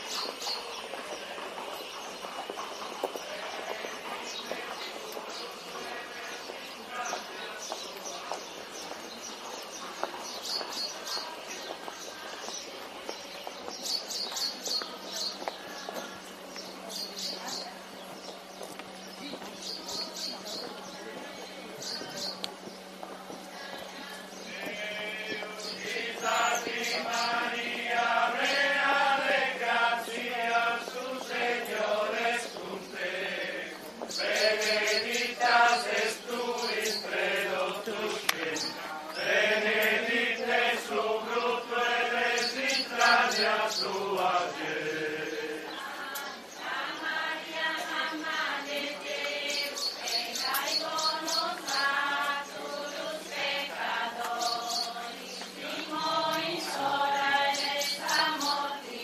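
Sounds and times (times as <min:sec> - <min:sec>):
group of voices chanting: 0:03.3 - 0:08.3, 0:24.0 - 0:59.0.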